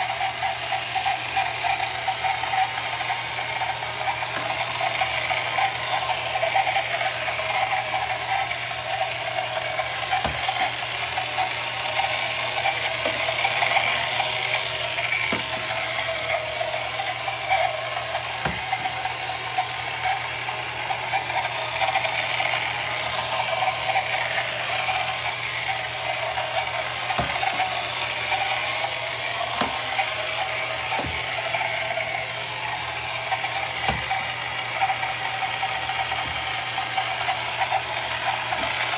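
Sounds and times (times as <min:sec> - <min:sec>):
toy electric motor running: 0:00.0 - 0:38.9.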